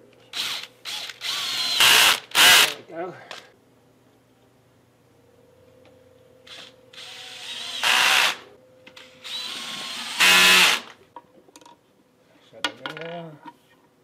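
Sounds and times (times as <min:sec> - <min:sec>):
cordless drill driving screws: 0:00.3 - 0:02.7, 0:06.5 - 0:08.4, 0:09.0 - 0:10.9.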